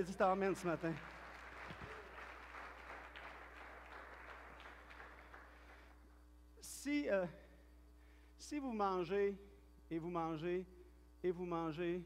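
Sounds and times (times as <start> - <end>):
congregation applauding: 0.0 - 6.0.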